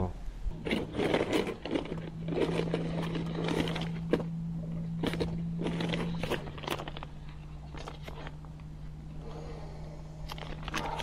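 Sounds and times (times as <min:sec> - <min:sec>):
low hum: 0:00.0 - 0:11.0
gear being handled in a boat: 0:00.5 - 0:08.5.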